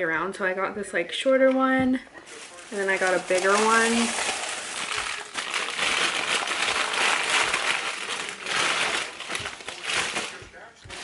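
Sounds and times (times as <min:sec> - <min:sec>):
packing paper crinkling: 0:02.2 - 0:11.0.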